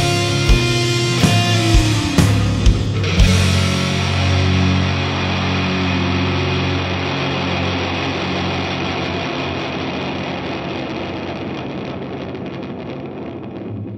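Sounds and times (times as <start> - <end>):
distorted heavy rock noise: 0.0 - 13.9.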